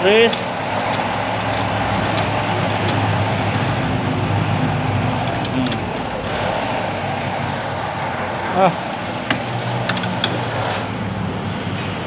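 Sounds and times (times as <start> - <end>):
low mechanical hum: 0.0 - 12.0.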